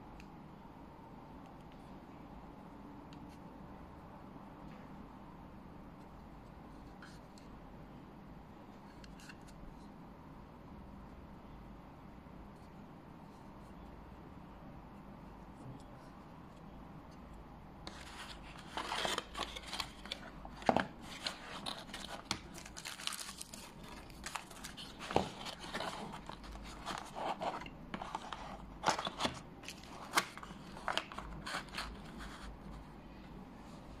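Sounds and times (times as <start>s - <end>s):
cardboard rustling and scraping: 17.9s - 32.8s.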